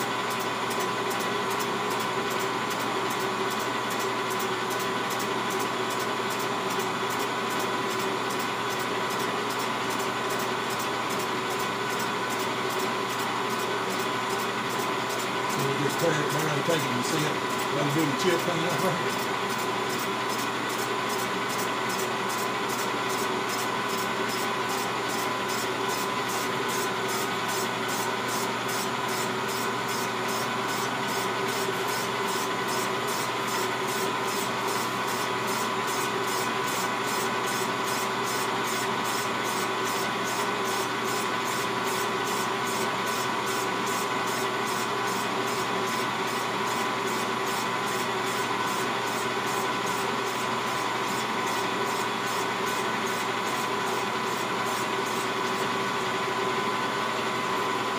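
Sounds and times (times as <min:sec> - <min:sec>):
lathe whining: 0:00.1 - 0:57.9.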